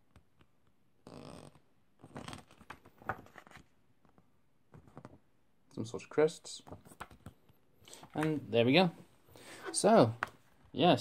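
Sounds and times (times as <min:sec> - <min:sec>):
paper pages rustling: 0:02.0 - 0:05.2.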